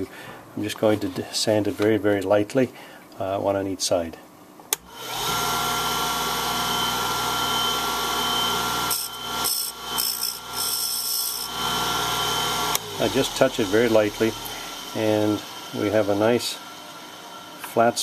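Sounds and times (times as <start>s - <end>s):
disc sander motor humming: 4.9s - 17.9s
metal grinding on sanding disc: 8.9s - 11.5s.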